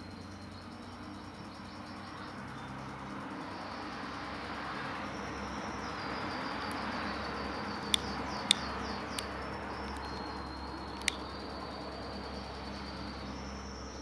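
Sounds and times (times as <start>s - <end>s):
outdoor background noise: 0.0s - 14.0s
sharp clicks: 7.8s - 10.1s, 10.8s - 11.3s.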